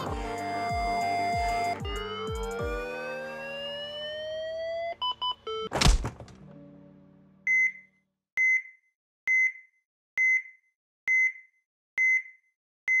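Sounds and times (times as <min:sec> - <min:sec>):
electronic heart monitor beep: 0:07.5 - 0:13.0.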